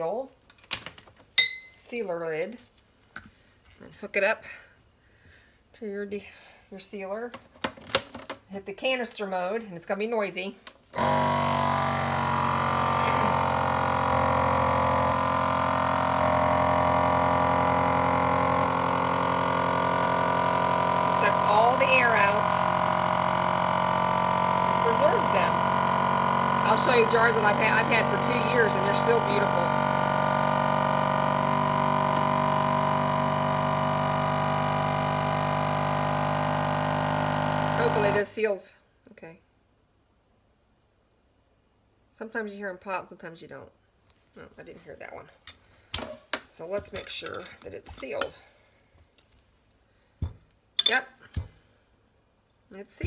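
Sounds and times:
vacuum pump motor hum: 11.0 - 38.3.

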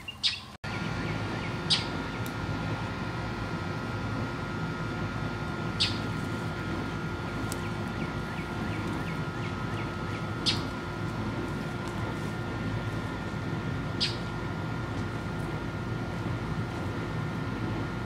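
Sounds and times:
bird chirping: 0.0 - 2.2, 5.8 - 6.0, 14.0 - 14.3
steady low rumble: 0.6 - 18.0
dry hay rustling: 5.5 - 17.8.

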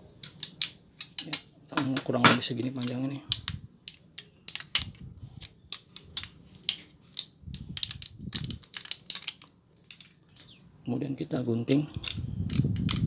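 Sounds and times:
metal foil crinkling: 7.8 - 10.2.

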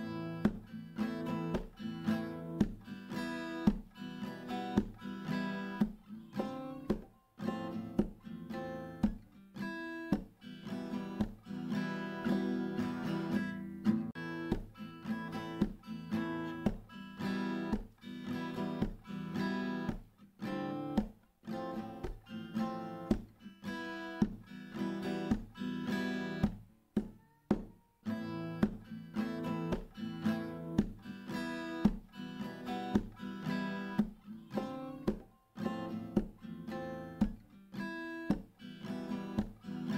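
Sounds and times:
acoustic guitar music: 0.0 - 39.9.

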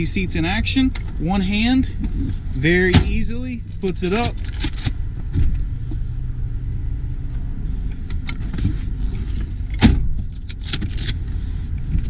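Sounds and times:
low rumble in car cabin: 0.0 - 12.0
seat latch clunk: 9.7 - 11.1.

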